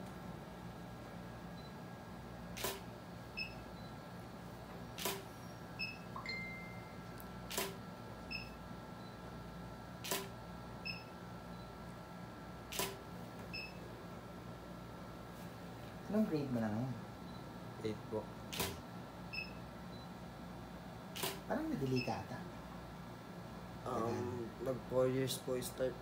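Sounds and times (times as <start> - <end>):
camera shutter clicking: 2.6 - 2.8, 5.0 - 5.2, 7.5 - 7.8, 10.0 - 10.3, 12.7 - 13.0, 18.5 - 18.8, 21.2 - 21.4.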